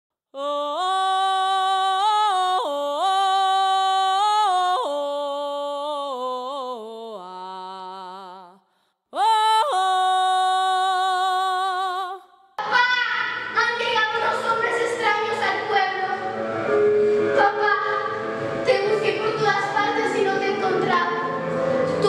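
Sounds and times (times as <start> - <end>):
person singing wordless melody: 0.3 - 12.6.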